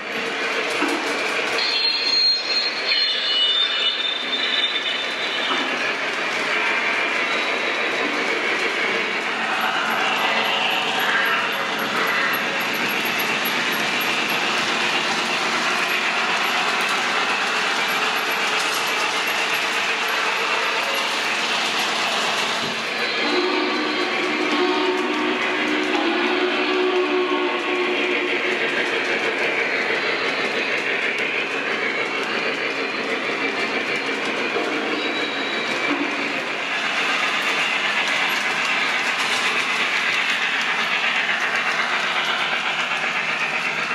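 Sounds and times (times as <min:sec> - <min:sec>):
model train rolling on track: 0:00.0 - 0:43.9.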